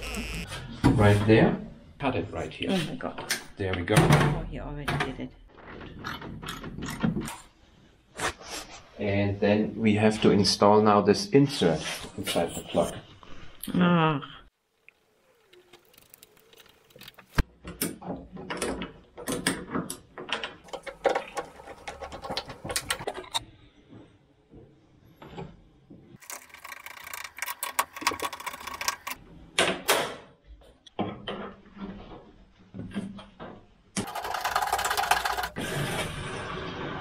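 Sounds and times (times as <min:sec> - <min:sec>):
screwdriver and parts clicking: 0:26.2 - 0:29.2.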